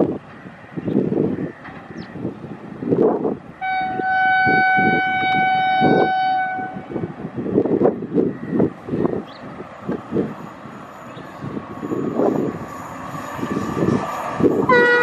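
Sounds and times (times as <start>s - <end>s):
locomotive horn blast: 3.6s - 6.9s, 14.7s - 15.0s.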